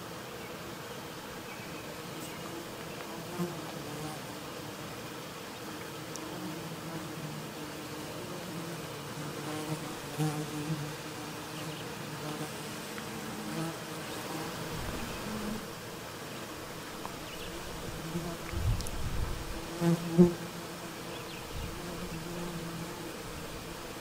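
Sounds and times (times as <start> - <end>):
flying insect buzzing: 0.0 - 24.0.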